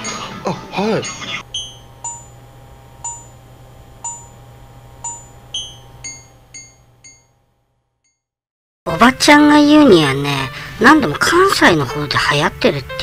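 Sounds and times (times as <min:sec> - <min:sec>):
low hum: 0:01.4 - 0:07.9
bell-like chime notes: 0:05.0 - 0:07.3.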